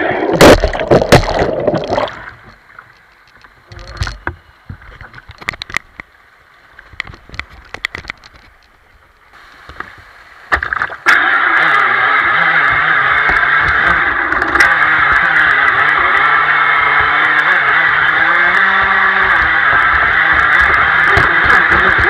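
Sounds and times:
faint water: 0.0 - 22.0
rc boat motor: 11.1 - 22.0
boat hull knocking on rocks: 18.6 - 22.0.

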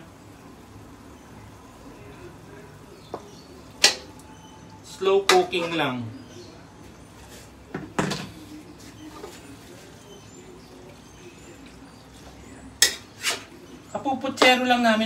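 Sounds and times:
metal utensil scraping a wok: 12.8 - 13.6.

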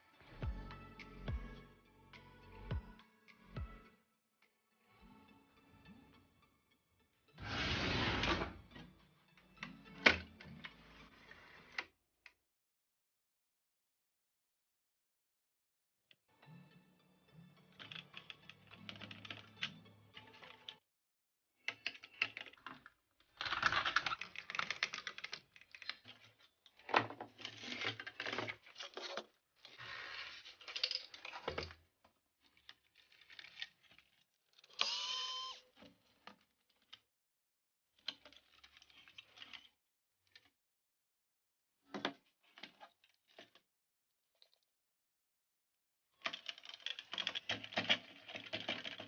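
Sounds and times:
plastic parts clicking and rattling: 17.7 - 20.8, 21.6 - 35.0, 35.7 - 37.1, 38.0 - 40.6, 41.9 - 43.6, 46.2 - 49.0.

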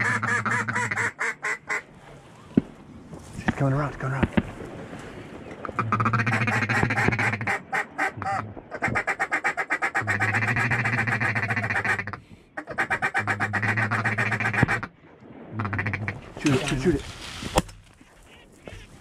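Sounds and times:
duck call clucks and quacks: 0.0 - 1.8, 5.7 - 14.9.

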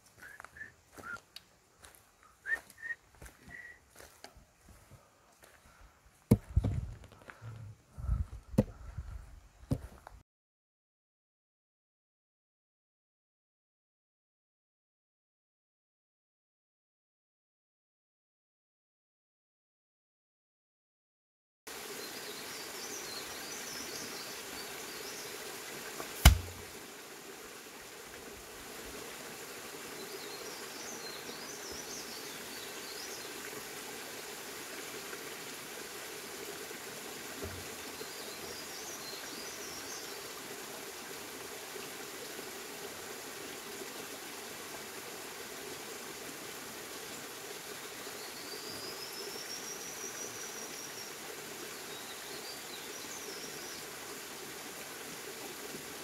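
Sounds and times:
outdoor hiss: 0.0 - 4.8, 21.7 - 56.0
whistled call rising and falling: 0.2 - 1.2, 2.4 - 3.9
sharp loud knock: 26.2 - 26.6.

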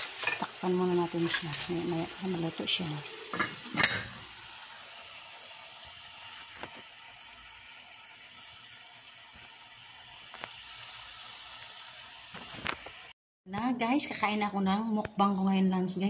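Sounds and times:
food sizzling under a lid: 0.0 - 13.2
glass lid clinking on metal pot: 3.3 - 4.2.

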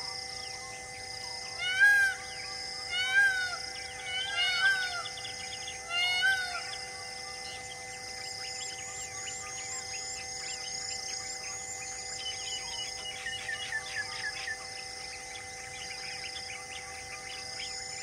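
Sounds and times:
animal calling: 1.6 - 7.7.

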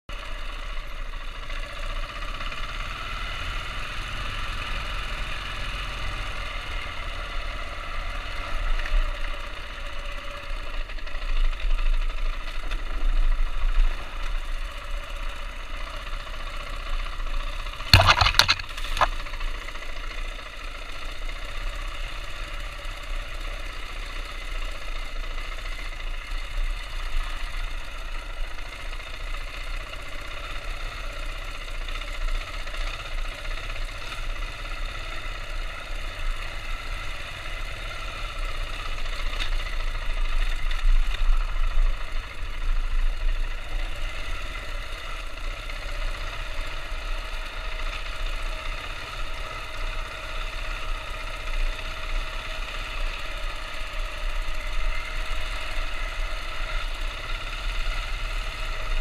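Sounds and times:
motorcycle engine running: 0.1 - 59.0
sharp knocks: 17.9 - 19.1.

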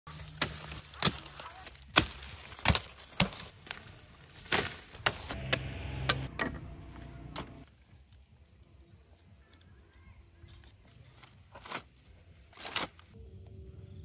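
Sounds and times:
machete chopping sugarcane: 0.1 - 3.8, 4.4 - 6.7
low steady hum: 5.4 - 7.6.

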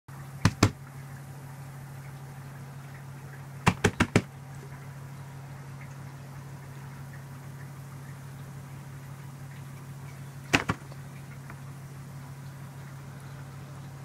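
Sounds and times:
steady low hum: 0.1 - 14.0
sharp knocks: 0.4 - 0.8, 3.7 - 4.3, 10.5 - 10.9.

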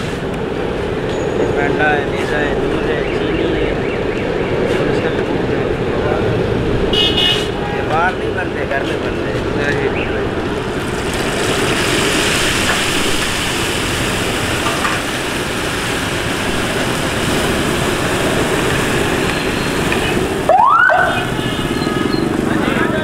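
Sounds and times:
batter sizzling in hot oil: 10.7 - 20.2
siren-like wail: 19.1 - 22.6.

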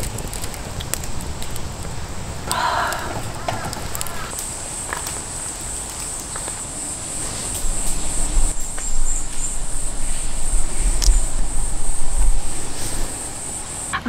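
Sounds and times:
insects chirring: 0.0 - 14.0
low rumble: 8.0 - 14.0.

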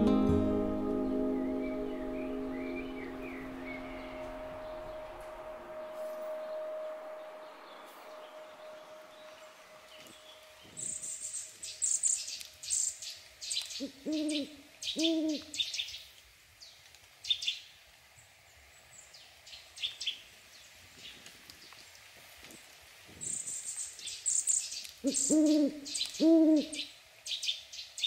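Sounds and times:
small birds chirping: 1.0 - 17.7, 23.2 - 28.0
owl hooting: 13.8 - 15.6, 25.0 - 26.9.

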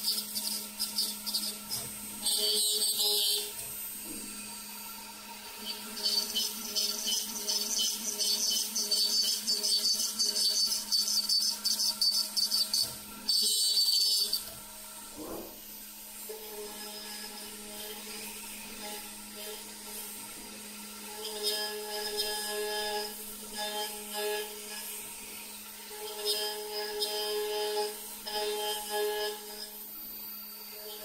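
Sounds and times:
router bit cutting with rattly hiss: 0.0 - 31.0
spindle humming: 0.0 - 31.0.

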